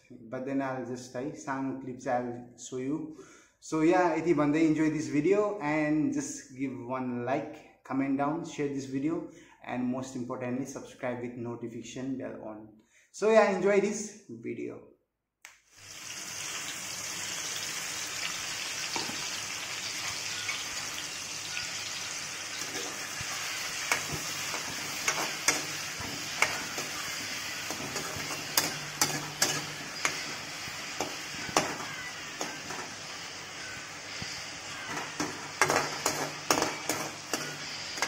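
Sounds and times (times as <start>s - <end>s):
onions sizzling in oil: 15.7s - 38.0s
metal spatula scraping pan: 22.5s - 33.1s, 34.7s - 38.0s.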